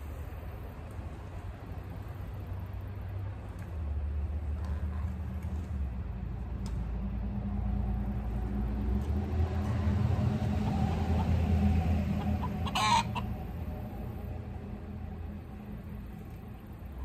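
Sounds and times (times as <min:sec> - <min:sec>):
low rumble: 0:05.4 - 0:17.0
chickens clucking: 0:09.6 - 0:14.4.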